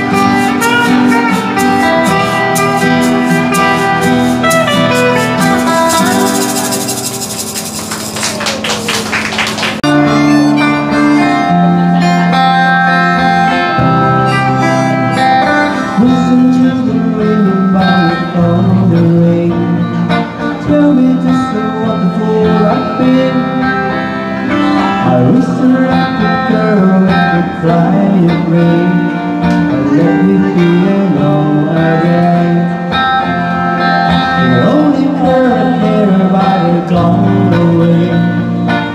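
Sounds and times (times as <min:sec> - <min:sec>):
bass line: 0:00.0 - 0:08.7
guitar: 0:00.0 - 0:38.9
live pop band playing: 0:00.0 - 0:38.9.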